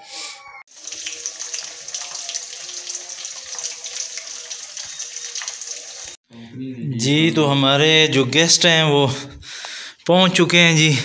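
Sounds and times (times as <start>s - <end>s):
fish deep-frying in hot oil: 0.7s - 6.2s.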